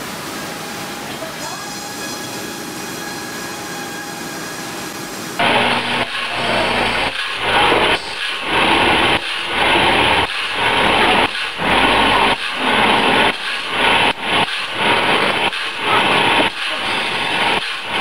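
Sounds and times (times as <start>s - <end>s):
grinding wheel grinding saw teeth: 5.4s - 18.0s.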